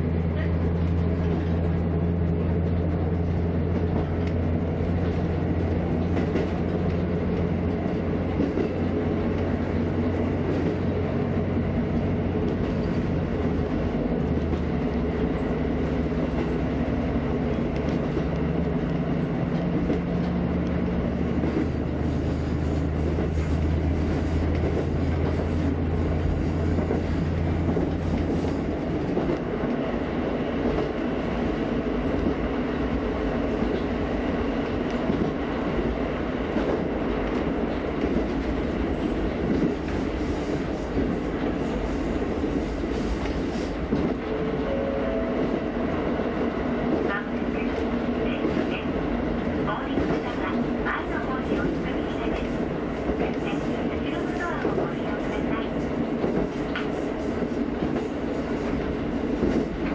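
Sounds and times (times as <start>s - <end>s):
diesel engine drone: 0.0s - 56.2s
wheels rumbling on rails: 0.0s - 59.9s
faint rail clicks: 2.6s - 9.5s, 17.5s - 21.8s, 56.2s - 57.2s.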